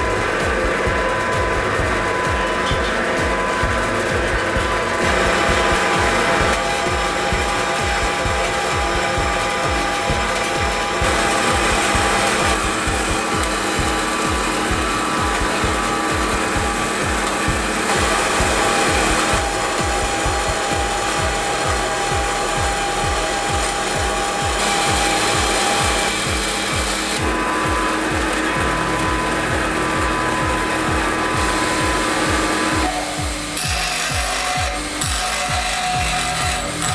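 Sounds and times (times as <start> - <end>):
bandsaw motor running: 0.0 - 36.9
saw teeth rasping through metal: 0.0 - 36.9.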